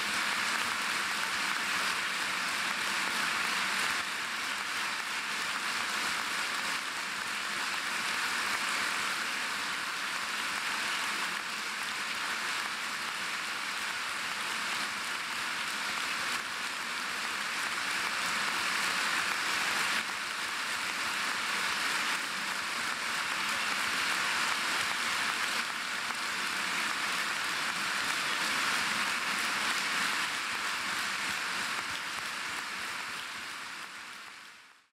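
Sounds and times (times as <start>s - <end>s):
audience applause: 0.0s - 34.9s.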